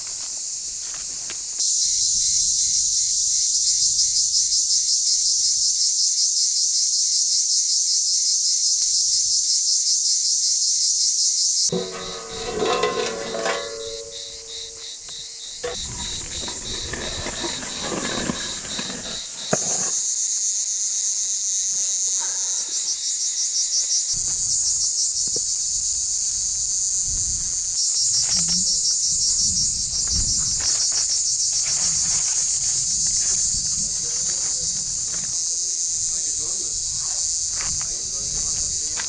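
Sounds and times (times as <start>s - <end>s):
insects buzzing: 0.0s - 39.0s
casserole dish knocks and scrapes: 11.7s - 14.9s, 15.6s - 20.0s.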